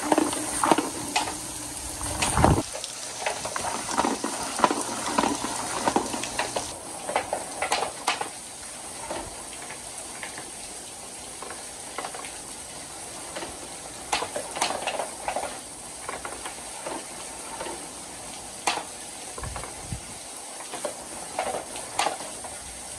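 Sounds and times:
water running down gutters: 0.0s - 22.9s
wooden balls rolling and bumping: 3.3s - 8.3s.

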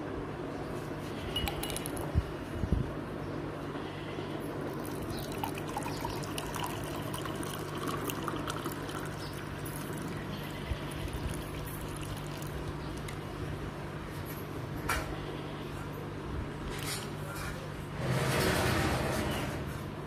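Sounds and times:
water pouring into a glass: 4.7s - 10.2s, 11.0s - 13.1s.

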